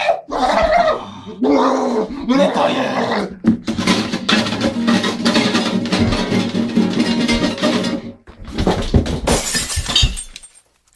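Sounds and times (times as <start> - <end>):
rough clattering noise: 3.4 - 10.9
strummed acoustic guitar music: 3.6 - 8.5.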